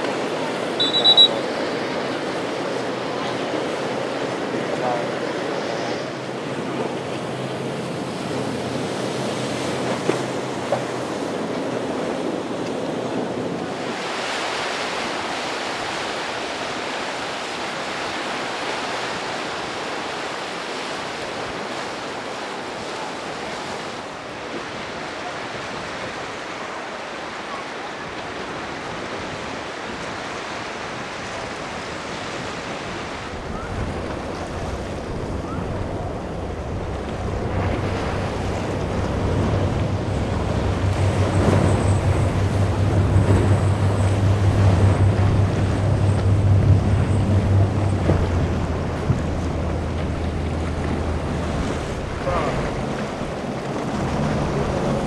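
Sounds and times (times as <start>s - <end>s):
low boat engine rumble: 0.0s - 16.6s, 27.4s - 55.0s
surf and waves: 0.0s - 55.0s
wind buffeting microphone: 28.8s - 55.0s.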